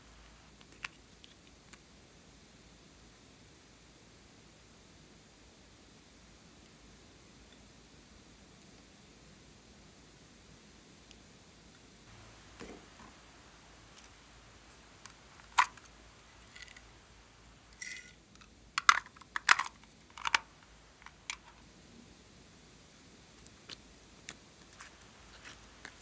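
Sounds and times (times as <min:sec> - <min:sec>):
plastic rattle: 0:15.4 - 0:16.8, 0:18.8 - 0:21.6.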